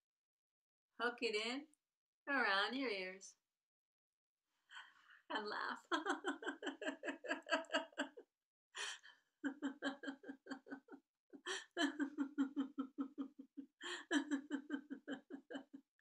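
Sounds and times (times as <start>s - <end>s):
woman laughing: 5.3s - 8.2s, 8.8s - 16.0s.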